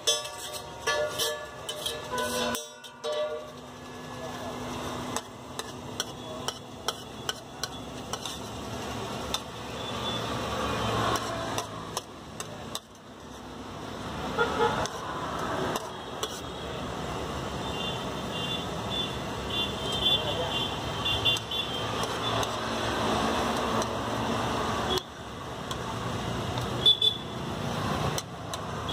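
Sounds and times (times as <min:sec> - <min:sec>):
metal spatula scraping plastic plate: 0:00.0 - 0:02.9, 0:05.6 - 0:08.6
street traffic: 0:00.0 - 0:28.9.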